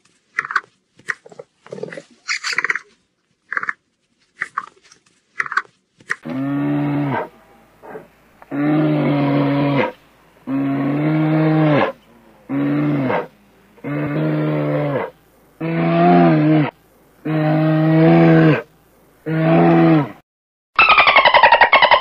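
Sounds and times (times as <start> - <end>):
large animal's long low calls: 6.2 - 20.2.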